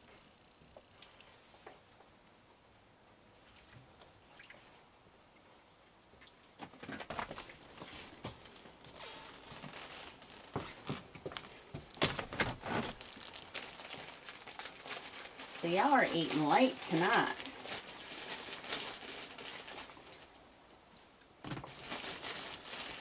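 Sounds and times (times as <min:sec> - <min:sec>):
raccoons crunching food: 0:06.2 - 0:20.5.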